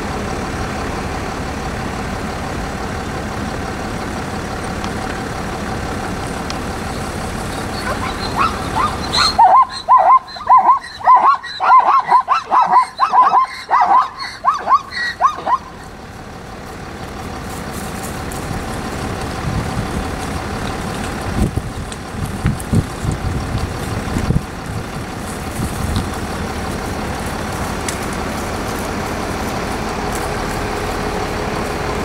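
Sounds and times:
vehicle engine idling: 0.0s - 32.0s
zebra barking: 7.2s - 16.1s.

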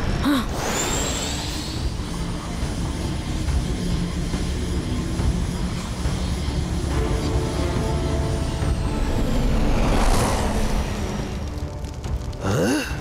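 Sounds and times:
jet hum with high whine: 0.8s - 11.6s
rising whoosh: 8.7s - 11.6s.

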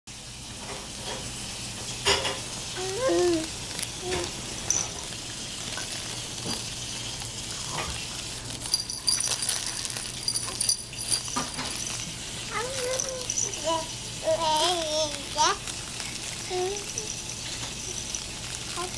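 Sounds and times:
crinkly rustle of fabric toys: 2.7s - 18.9s
baby cooing: 2.8s - 4.4s, 12.5s - 15.6s.

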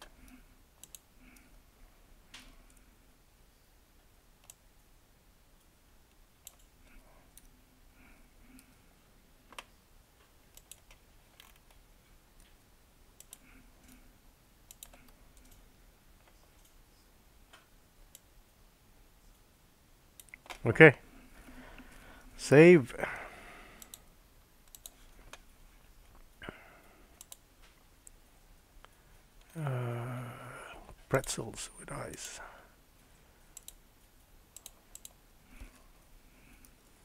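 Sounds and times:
mouse and keyboard clicks: 0.0s - 1.4s, 14.7s - 15.6s, 24.6s - 25.4s.

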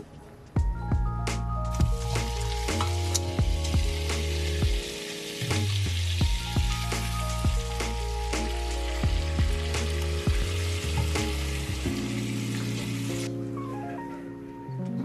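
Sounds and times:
background music with steady beat: 0.5s - 15.0s
food sizzling in a pot: 1.7s - 13.3s.

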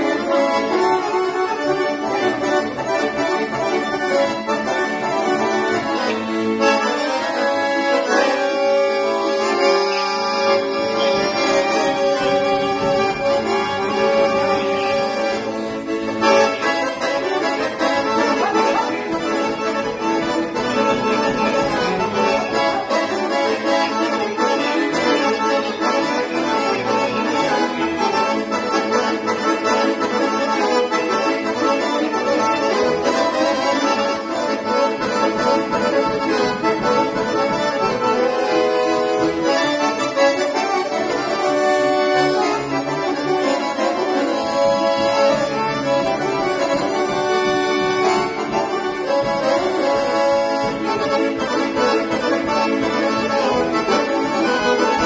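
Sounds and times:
accordion playing a tune: 0.0s - 55.0s.

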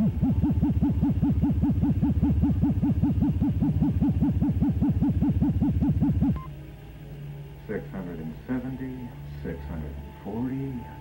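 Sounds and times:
electronic warbling tone: 0.0s - 6.5s.

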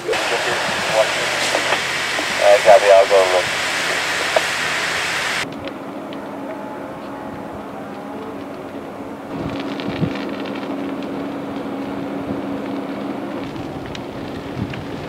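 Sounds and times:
burning brush crackling and popping: 0.0s - 6.3s, 8.2s - 15.0s
engine hum: 0.0s - 15.0s.

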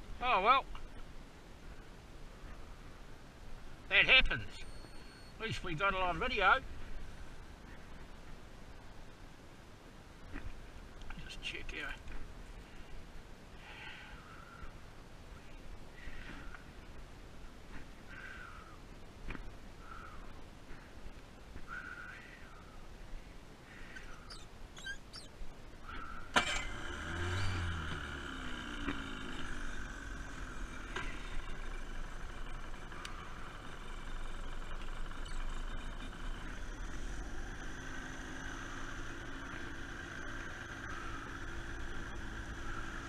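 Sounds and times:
outboard motor idling: 26.2s - 43.0s.

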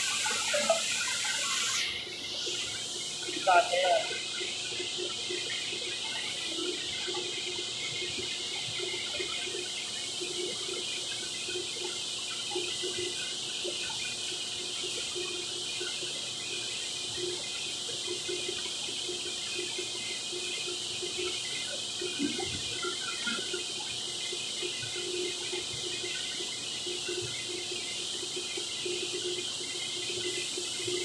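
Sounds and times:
machinery high hiss: 0.0s - 4.3s.

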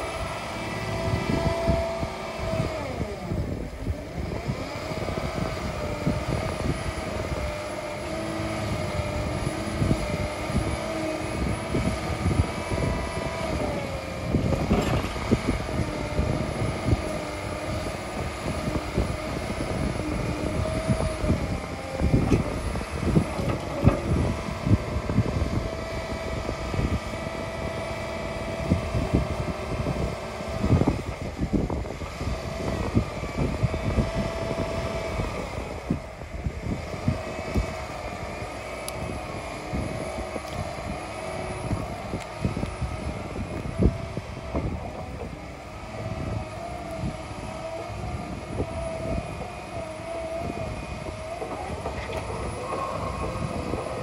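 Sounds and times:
diesel engine drone: 0.0s - 54.0s
hydraulics whining: 0.0s - 54.0s.

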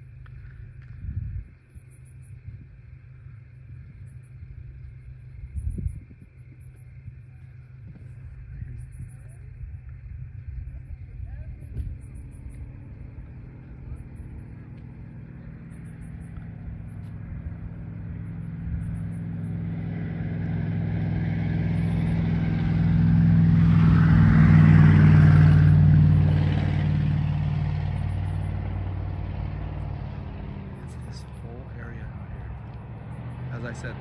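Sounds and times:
car driving past: 11.7s - 34.0s.

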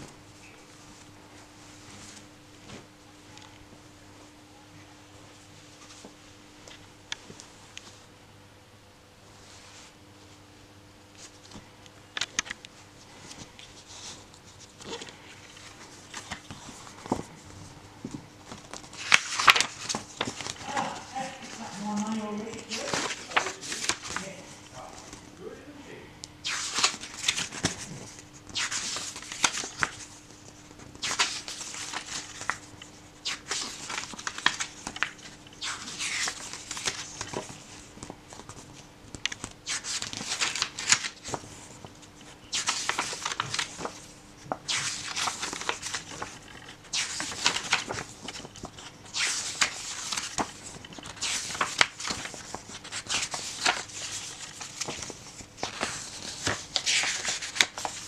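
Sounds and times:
book pages turning: 11.2s - 25.3s, 26.4s - 58.0s.

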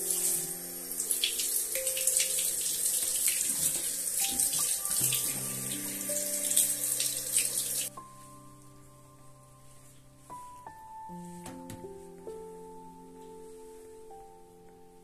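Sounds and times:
shower head spraying water: 0.0s - 7.9s
soft background music: 0.0s - 15.0s.

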